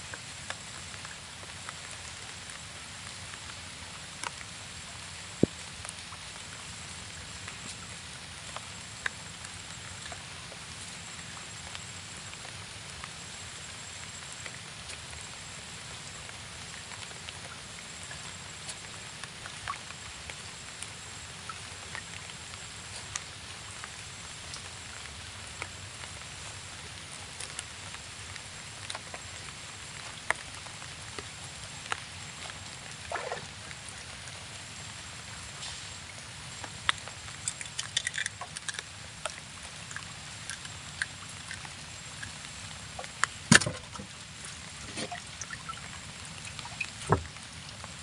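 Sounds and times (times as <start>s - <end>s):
light rain on water and boat: 0.0s - 48.0s.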